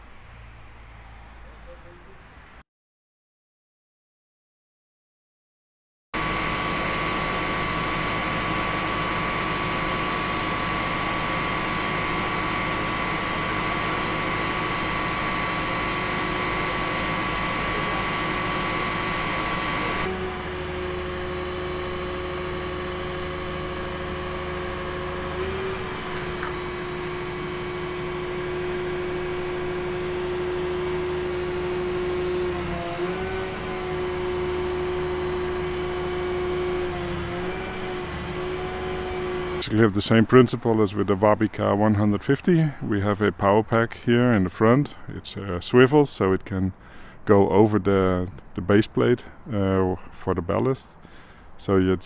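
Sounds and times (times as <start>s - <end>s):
high hydraulic whine: 6.2s - 42.4s
hydraulic power pack hum: 6.2s - 52.0s.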